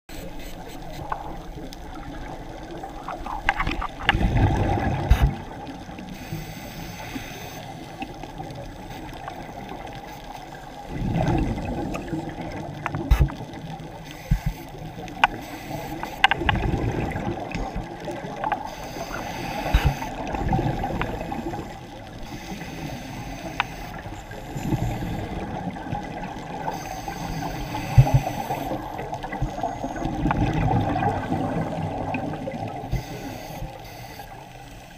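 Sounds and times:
gurgling exhaled bubbles: 1.2s - 6.1s, 10.6s - 14.0s, 16.3s - 22.9s, 24.0s - 33.2s
regulator hiss of inhaled air: 18.6s - 20.2s, 21.2s - 25.4s.

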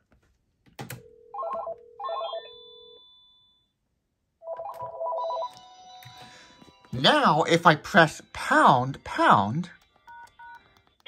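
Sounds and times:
cordless phone ringing: 1.0s - 3.6s, 4.4s - 6.4s.

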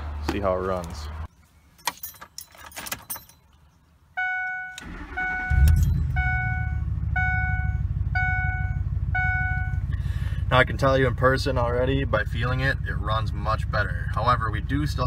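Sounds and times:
keys jingling: 1.7s - 3.6s
dashboard warning chime: 4.2s - 9.8s
engine cranking: 4.8s - 6.4s
engine idling: 4.8s - 15.0s.

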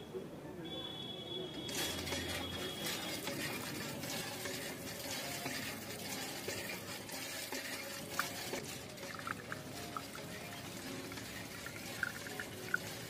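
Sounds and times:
water trickling into a pot: 1.7s - 13.0s.

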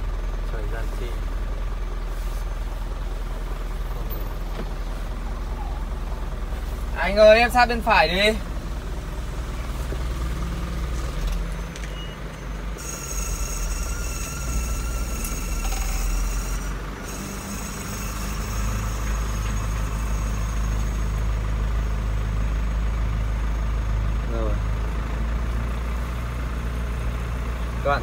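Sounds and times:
truck engine running: 0.0s - 28.0s
faint high whine: 12.8s - 21.5s.

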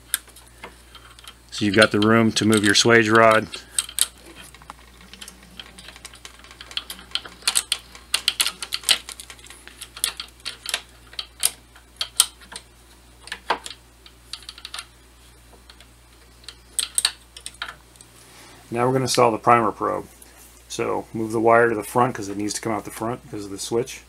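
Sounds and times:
metal parts clicking and clinking: 0.0s - 14.9s, 15.6s - 18.1s
faint low hum: 0.0s - 24.0s.

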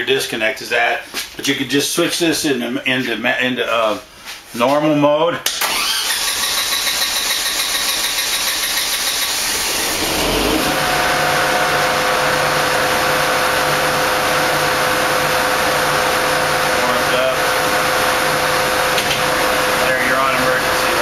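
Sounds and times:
generator engine running: 5.6s - 21.0s.

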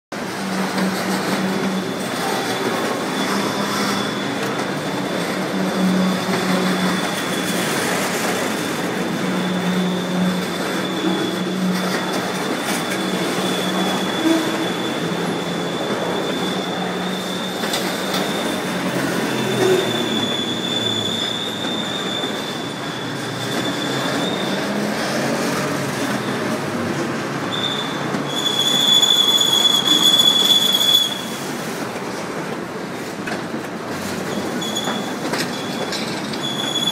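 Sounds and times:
freight train rumbling: 0.1s - 36.9s
high wheel squeal: 0.2s - 31.8s, 34.1s - 36.9s.

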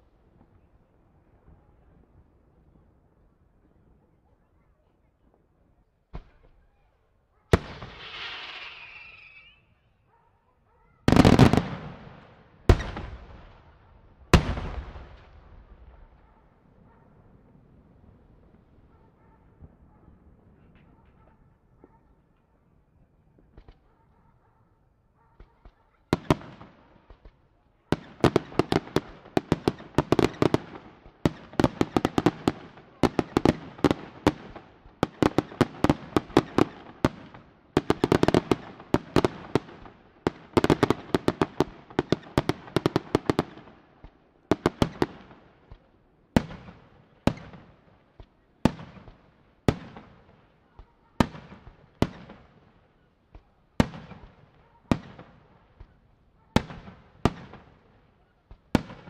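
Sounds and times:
fireworks bangs and crackles: 7.5s - 9.6s, 11.0s - 21.0s, 23.4s - 23.9s, 25.4s - 59.0s.

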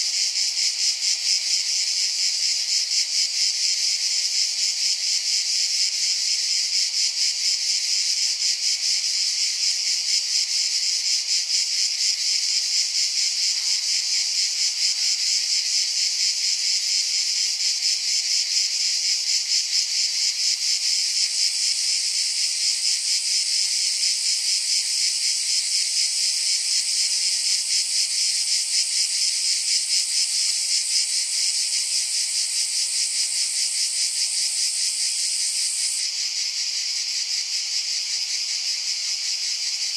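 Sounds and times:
high-pitched insect chirring: 11.1s - 39.9s.

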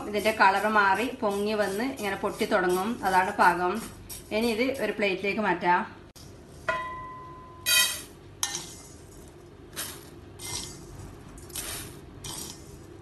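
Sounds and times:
metal spoon scraping a pan: 0.0s - 5.0s, 7.7s - 9.2s
spoon clinking on a metal plate: 6.7s - 8.6s.

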